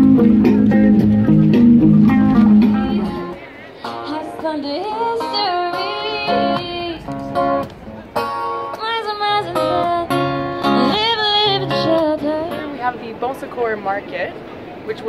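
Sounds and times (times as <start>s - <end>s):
strummed acoustic guitar: 0.0s - 13.0s
woman singing into microphone: 3.9s - 7.1s, 8.7s - 12.9s.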